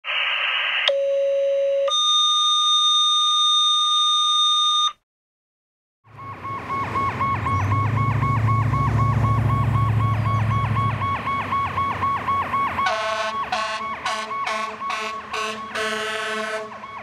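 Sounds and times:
radio static burst: 0.0s - 0.9s
two-tone radio page tones: 0.3s - 2.0s
fire engine siren yelp: 6.1s - 17.0s.

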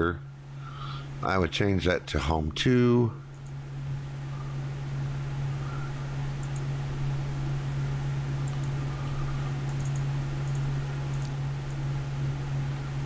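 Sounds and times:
low hum: 0.0s - 13.0s
keyboard and mouse clicks: 6.4s - 6.7s, 9.7s - 11.8s.

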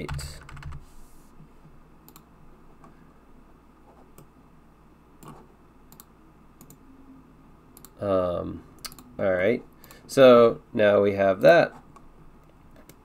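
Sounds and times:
keyboard typing: 0.0s - 0.8s
computer mouse clicks: 2.1s - 2.3s, 5.2s - 6.8s, 7.8s - 8.0s, 8.8s - 9.1s.

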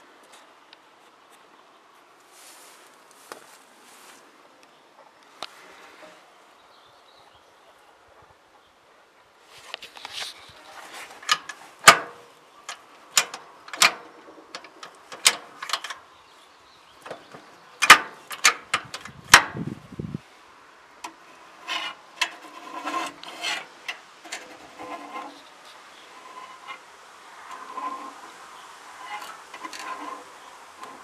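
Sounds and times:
rustling: 0.0s - 4.4s, 9.4s - 16.1s, 21.0s - 31.0s
sharp clicks and knocks: 11.1s - 16.1s, 17.0s - 19.7s.

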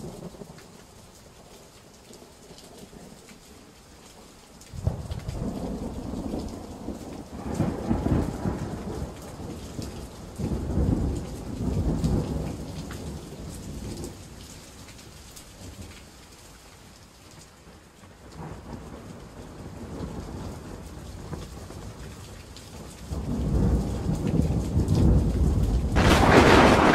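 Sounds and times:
rain pattering: 0.0s - 26.9s
thunder rumbling: 23.1s - 26.9s.

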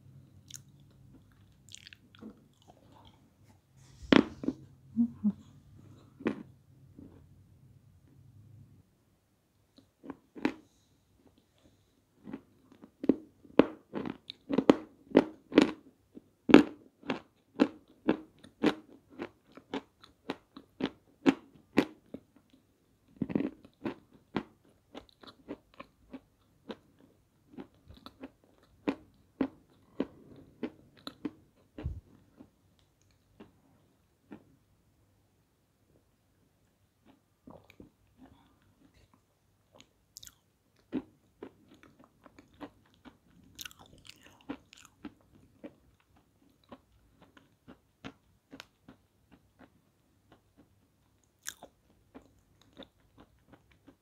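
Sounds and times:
crunching and chewing dry clay: 0.4s - 3.3s, 9.7s - 34.5s, 37.0s - 54.0s.

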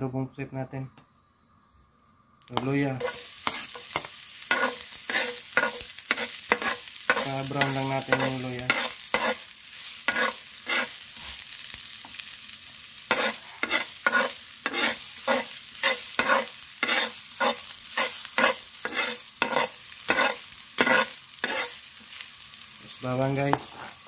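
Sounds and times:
ginger sizzling in hot oil: 2.4s - 24.0s
metal spatula scraping pan: 3.0s - 9.5s, 10.1s - 11.0s, 13.1s - 21.8s.

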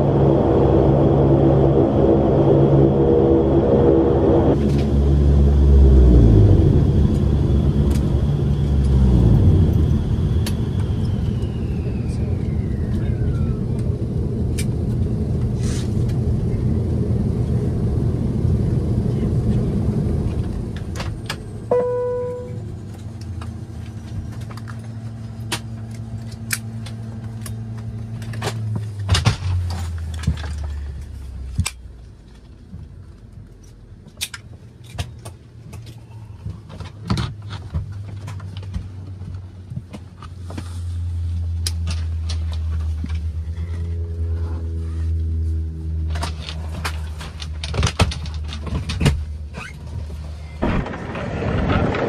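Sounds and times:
turboprop engines droning: 0.0s - 52.0s
short chime: 21.7s - 22.6s.

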